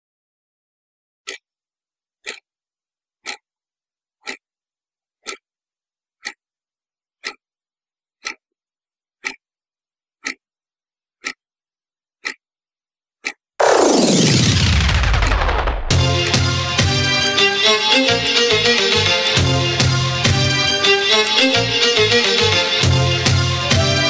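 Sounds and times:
clock ticking: 2.2s - 2.4s, 3.2s - 3.4s, 4.2s - 4.4s, 5.2s - 5.4s, 6.2s - 6.4s, 7.2s - 7.4s, 8.2s - 8.4s, 9.2s - 9.4s, 10.2s - 10.4s, 11.2s - 11.4s, 12.2s - 12.4s, 13.2s - 14.6s, 15.2s - 24.0s.

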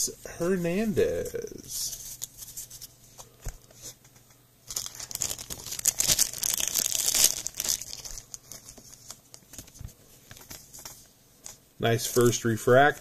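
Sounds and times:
plastic wrappers crinkling: 4.6s - 12.4s.

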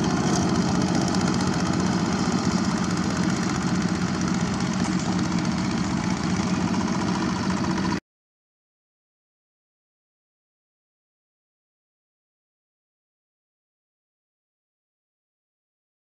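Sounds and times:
diesel engine running under load: 0.0s - 8.0s.

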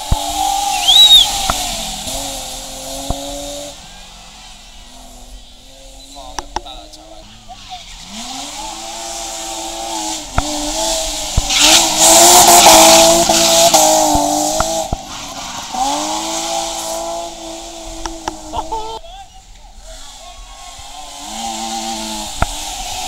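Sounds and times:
rally car engine at full throttle: 0.0s - 23.0s
tyres squealing: 0.4s - 2.4s.

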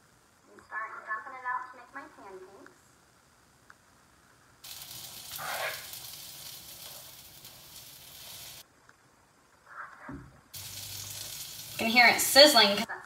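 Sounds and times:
batter sizzling on griddle: 4.6s - 8.7s, 10.5s - 12.9s.

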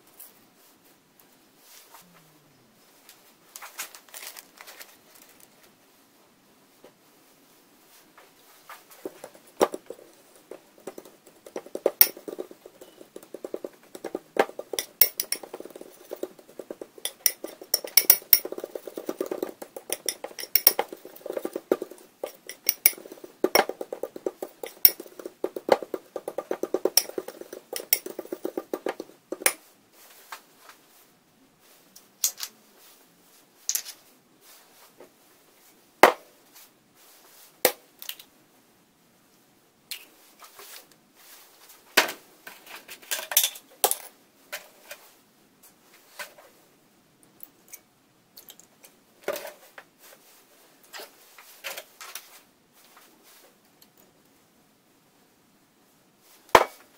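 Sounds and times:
utensil stirring in ceramic bowl: 8.9s - 29.6s.

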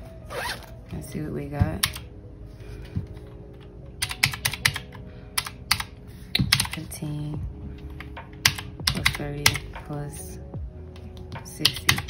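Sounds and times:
calculator keys clicking: 1.8s - 2.0s, 4.0s - 6.8s, 8.4s - 9.7s, 11.2s - 12.0s.

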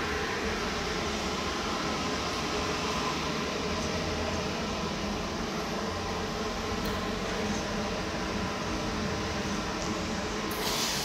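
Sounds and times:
machine hum and hiss: 0.0s - 11.0s.

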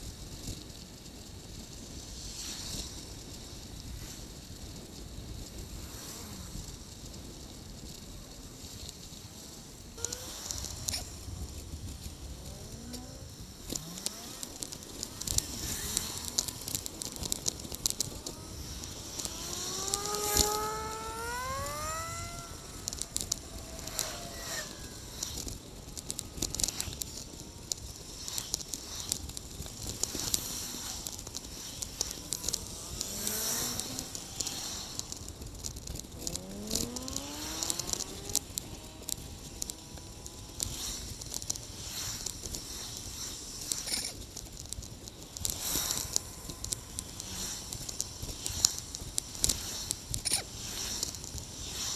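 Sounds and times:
wind and road noise: 0.0s - 51.9s
bicycle rattling clicks: 0.1s - 51.9s
vehicle engine rising in pitch: 18.2s - 25.7s.

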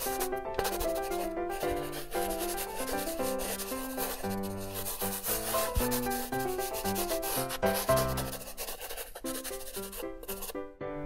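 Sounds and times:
pencil scratching on paper: 0.0s - 10.6s
light background music: 0.0s - 11.0s.

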